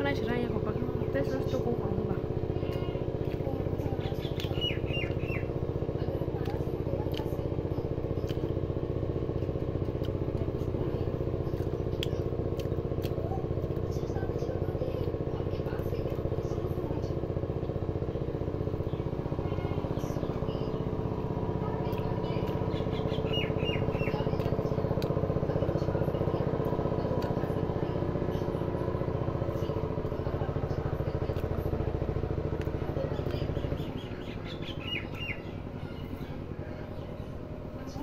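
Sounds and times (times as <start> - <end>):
engine running with throb: 0.0 - 38.0
bird chirps: 4.0 - 5.6, 22.5 - 24.3, 33.0 - 36.4.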